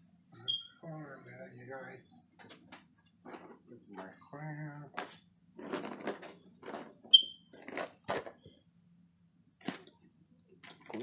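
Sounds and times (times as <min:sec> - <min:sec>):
high-pitched electronic chirp: 0:00.4 - 0:00.9, 0:07.1 - 0:07.4.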